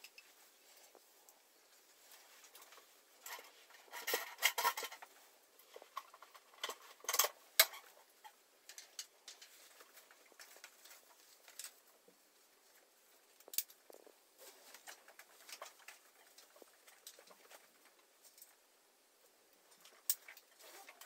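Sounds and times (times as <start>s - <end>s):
metal frame clinking and rattling: 2.5s - 11.8s.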